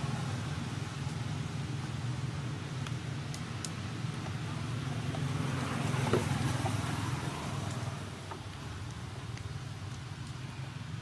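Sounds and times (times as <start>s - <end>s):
traffic engine rumble: 0.0s - 11.0s
vehicle passing: 4.8s - 8.2s.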